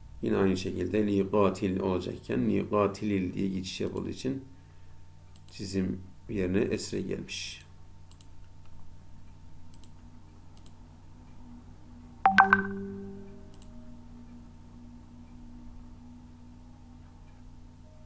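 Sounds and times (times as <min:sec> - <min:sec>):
low steady hum: 0:00.0 - 0:18.0
faint clicks: 0:05.3 - 0:05.5, 0:08.1 - 0:08.8, 0:09.7 - 0:10.0, 0:10.6 - 0:10.8
short chime: 0:12.3 - 0:13.4.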